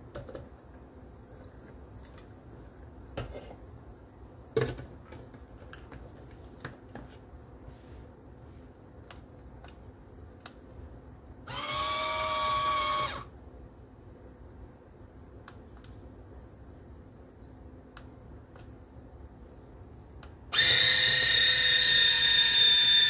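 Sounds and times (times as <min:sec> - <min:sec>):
juicer motor whine: 0:11.5 - 0:13.3, 0:20.5 - 0:23.0.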